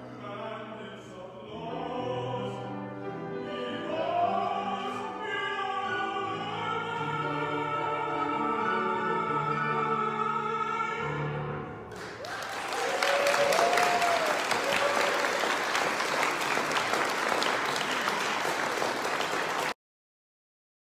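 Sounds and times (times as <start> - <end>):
audience applause: 11.9 - 19.8.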